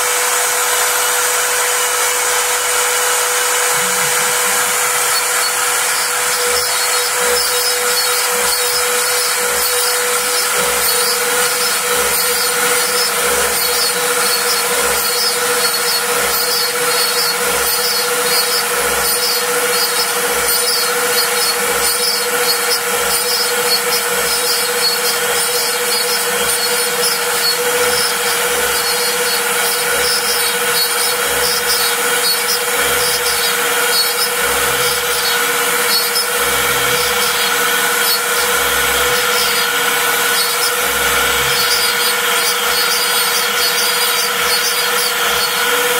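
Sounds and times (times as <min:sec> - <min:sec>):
bit rasping through board: 0:00.0 - 0:45.9
router motor whine: 0:00.0 - 0:45.9.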